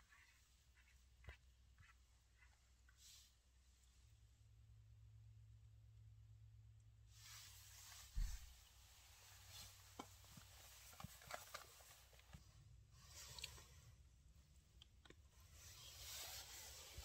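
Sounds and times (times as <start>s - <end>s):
low thump: 8.1s - 8.6s
rustling and small clicks: 9.4s - 12.5s.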